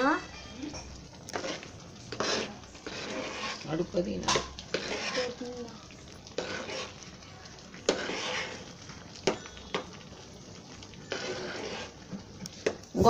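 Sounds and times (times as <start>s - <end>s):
curry simmering: 0.0s - 13.0s
metal spoon clinking on pot: 0.1s - 1.0s, 9.2s - 9.9s.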